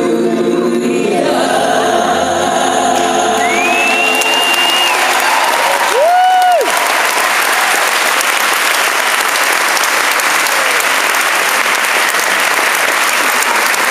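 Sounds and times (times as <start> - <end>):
audience applause: 3.4 - 13.9.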